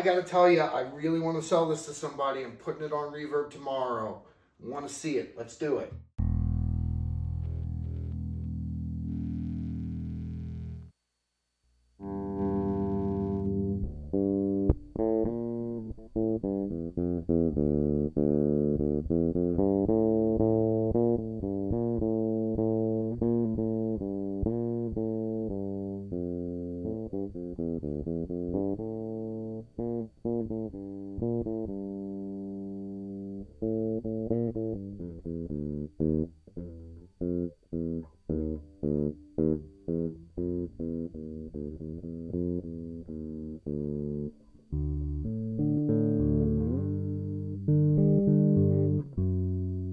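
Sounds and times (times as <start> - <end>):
electric bass plucked notes: 5.7 - 10.9, 12.0 - 49.9.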